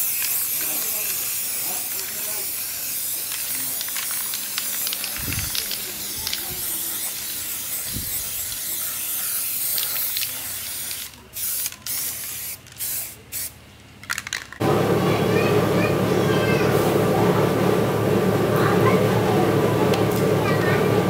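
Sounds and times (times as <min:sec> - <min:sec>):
spray paint can hissing: 0:00.0 - 0:13.6.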